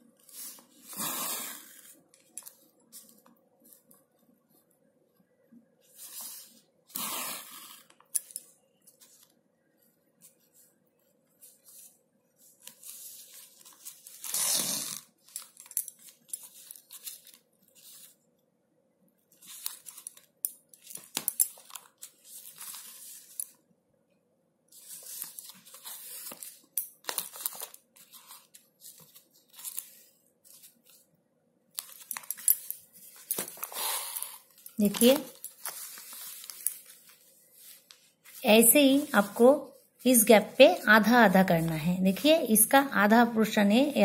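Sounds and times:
plastic sack rustling and crinkling: 0:31.8 - 0:40.1.

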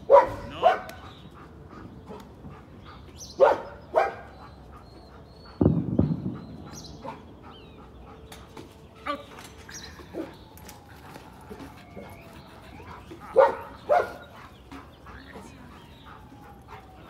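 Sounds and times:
dog barking: 0:00.0 - 0:01.2, 0:03.4 - 0:04.4, 0:07.0 - 0:07.3, 0:13.3 - 0:14.4.

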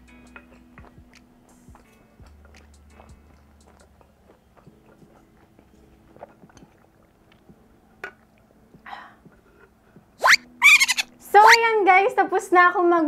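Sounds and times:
person chewing: 0:00.4 - 0:07.6.

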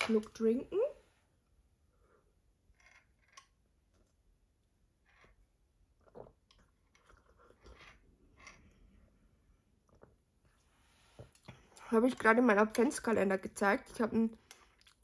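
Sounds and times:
person chewing: 0:14.5 - 0:15.0.

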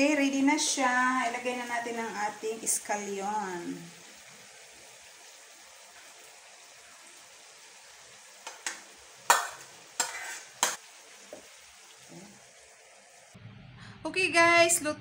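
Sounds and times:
shrimp sizzling in a skillet: 0:00.0 - 0:13.4
utensils clacking against pan: 0:08.4 - 0:10.8.

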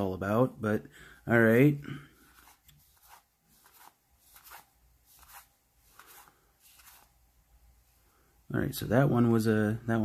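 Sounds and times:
cards sliding swishes: 0:02.2 - 0:07.2.

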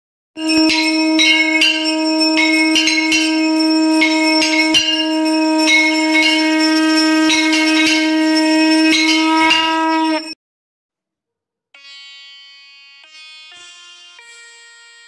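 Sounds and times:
conch shell blown: 0:00.4 - 0:10.4
hand bell ringing: 0:00.4 - 0:10.4.

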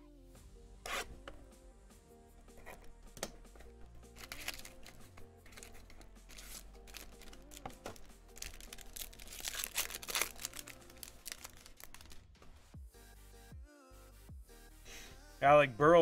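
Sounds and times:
background music: 0:00.0 - 0:16.0
card packaging crinkling and tearing: 0:03.6 - 0:12.5.

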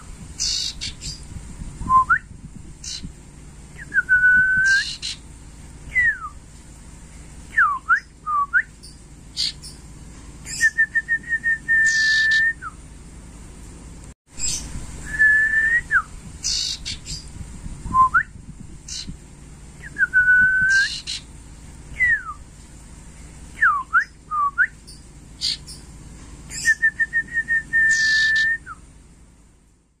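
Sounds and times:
bird whistling song: 0:00.0 - 0:03.1, 0:03.8 - 0:05.2, 0:05.9 - 0:06.4, 0:07.5 - 0:09.8, 0:10.4 - 0:12.8, 0:14.4 - 0:19.2, 0:19.8 - 0:21.3, 0:21.9 - 0:22.4, 0:23.6 - 0:25.9, 0:26.5 - 0:28.8
short high bird chirps: 0:00.4 - 0:01.2, 0:03.9 - 0:05.2, 0:07.5 - 0:09.8, 0:11.7 - 0:12.8, 0:15.9 - 0:17.3, 0:19.8 - 0:21.3, 0:27.8 - 0:28.8.

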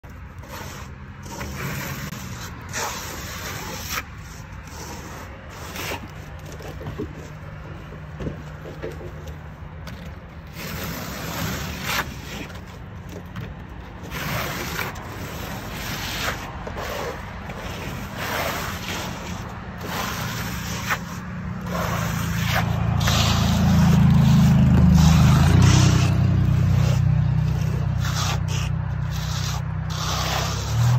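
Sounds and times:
trowel scraping stucco: 0:00.1 - 0:30.9
low engine-like hum: 0:16.6 - 0:30.9.

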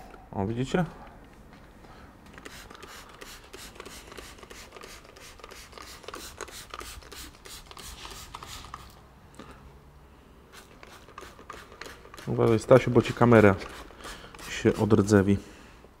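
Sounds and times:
spray bottle bursts: 0:02.3 - 0:09.0, 0:10.5 - 0:15.0.

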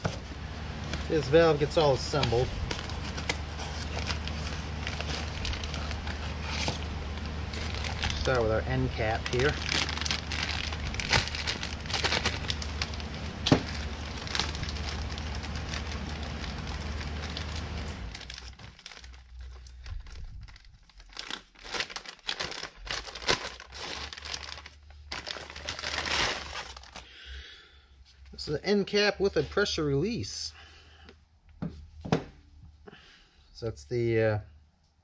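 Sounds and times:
plastic bag crinkling: 0:00.8 - 0:27.1.

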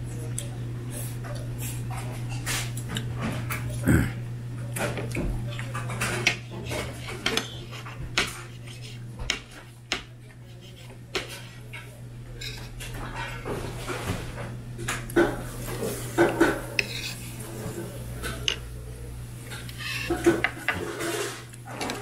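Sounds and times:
steady low hum: 0:00.0 - 0:04.7.

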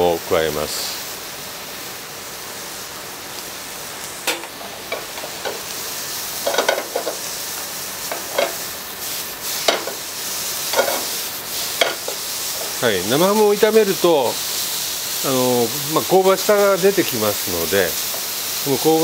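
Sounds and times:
onions sizzling in a frying pan: 0:00.0 - 0:19.0
wooden spatula scraping a pan: 0:10.6 - 0:12.8.

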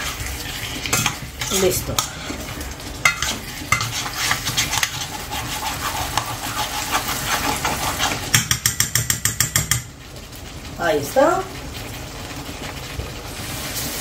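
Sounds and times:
spoon scraping and knocking pan: 0:00.0 - 0:09.9
food sizzling in a pan: 0:00.0 - 0:14.0.

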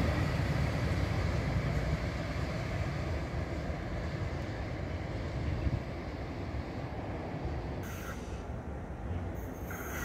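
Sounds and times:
tram rumbling on rails: 0:00.0 - 0:10.0.

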